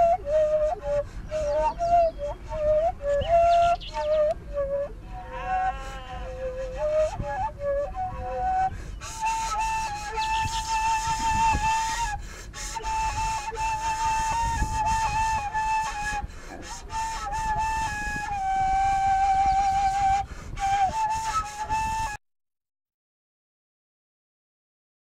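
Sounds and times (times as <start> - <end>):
flute-like slow melody: 0.0 - 22.2.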